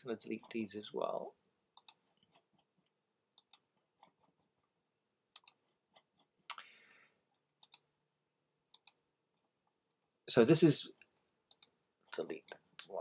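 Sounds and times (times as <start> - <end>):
computer mouse clicking: 1.8 - 4.4, 5.3 - 6.6, 7.6 - 7.9, 8.7 - 9.0, 11.0 - 11.8.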